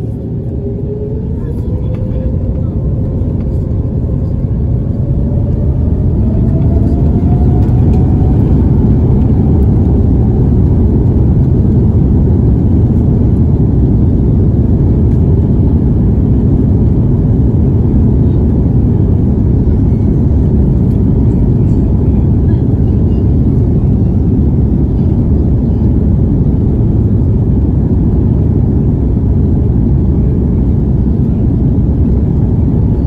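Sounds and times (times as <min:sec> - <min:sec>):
faint rising whine: 0:00.0 - 0:22.4
jet engines rumbling: 0:00.0 - 0:33.0.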